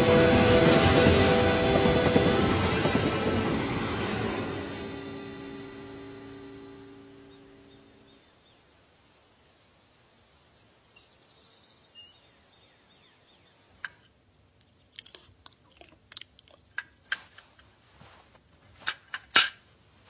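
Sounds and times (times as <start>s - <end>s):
bird chirps: 6.6s - 13.7s
wet eating sounds: 14.6s - 17.0s.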